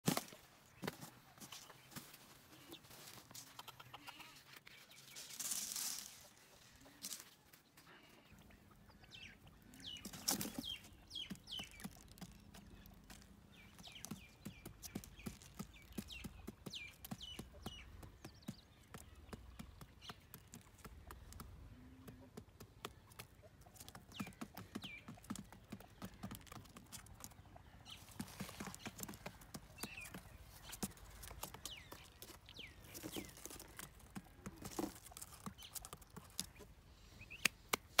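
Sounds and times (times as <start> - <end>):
quail pecking taps and clicks: 8.4 - 38.0.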